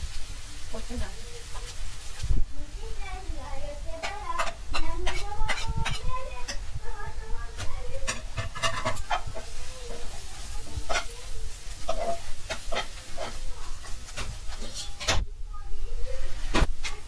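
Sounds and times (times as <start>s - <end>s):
eggs sizzling: 0.0s - 17.0s
metal spoon scraping frying pan: 3.9s - 15.2s.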